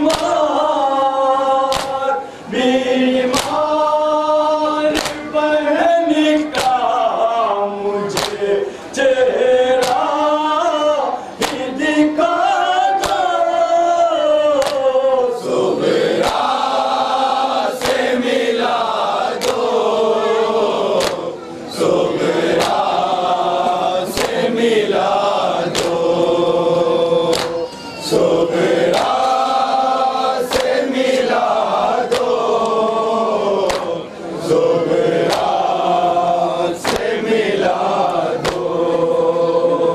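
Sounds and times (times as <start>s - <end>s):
men chanting in unison: 0.0s - 39.9s
hand slaps on chest: 0.1s - 0.3s, 1.7s - 2.0s, 3.3s - 3.6s, 5.0s - 5.2s, 6.5s - 6.8s, 8.2s - 8.4s, 9.8s - 10.0s, 11.4s - 11.6s, 13.0s - 13.2s, 14.6s - 14.8s, 17.8s - 18.1s, 19.4s - 19.6s, 21.0s - 21.2s, 22.6s - 22.9s, 24.2s - 24.4s, 25.7s - 26.0s, 27.3s - 27.6s, 30.5s - 30.8s, 32.1s - 32.4s, 33.7s - 33.9s, 35.3s - 35.5s, 36.8s - 37.1s, 38.4s - 38.7s.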